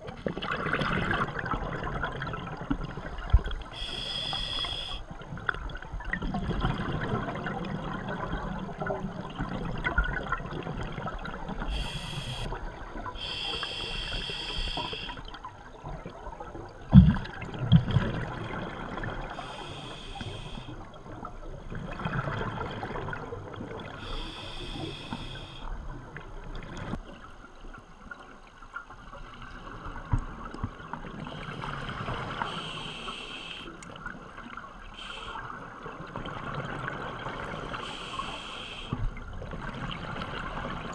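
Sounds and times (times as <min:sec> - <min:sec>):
exhaled bubbles gurgling: 0:00.0 - 0:27.0, 0:39.0 - 0:40.9
regulator hissing inhalation: 0:03.8 - 0:05.0, 0:11.7 - 0:12.5, 0:13.2 - 0:15.2, 0:19.4 - 0:20.7, 0:24.0 - 0:25.6, 0:37.8 - 0:39.0.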